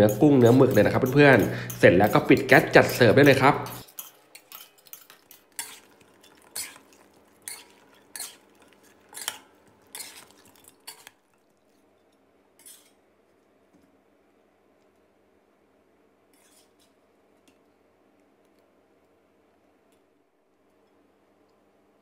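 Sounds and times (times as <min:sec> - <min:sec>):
metal spatula scraping a wok: 0:00.0 - 0:11.1, 0:12.6 - 0:13.0, 0:16.3 - 0:16.8.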